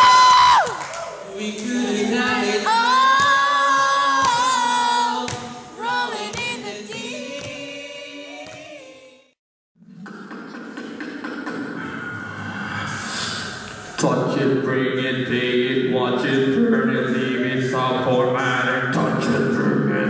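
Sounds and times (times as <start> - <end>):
man singing into microphone: 1.3 - 5.6.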